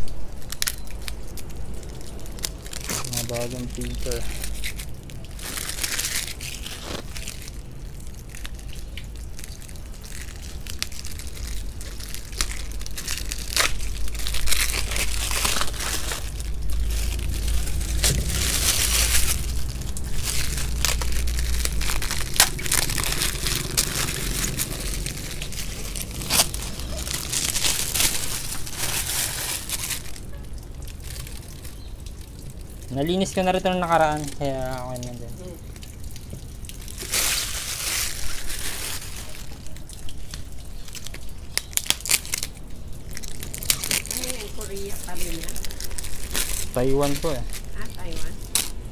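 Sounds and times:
plastic wrapping crinkling: 0.0 - 48.9
low rumble: 10.7 - 32.4.

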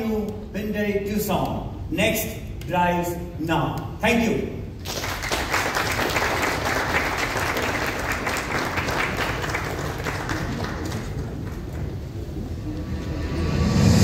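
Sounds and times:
audience applauding: 4.8 - 12.1.

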